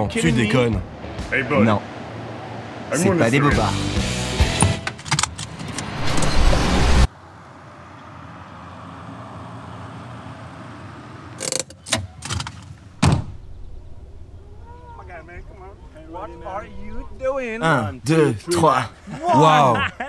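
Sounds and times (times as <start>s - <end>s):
car driving on a road: 0.0s - 19.3s
loud rush of noise with clicks: 4.8s - 7.1s.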